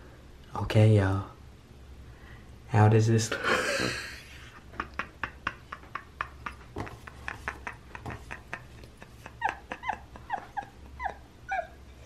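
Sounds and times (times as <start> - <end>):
dog whimpering: 9.4 - 12.0.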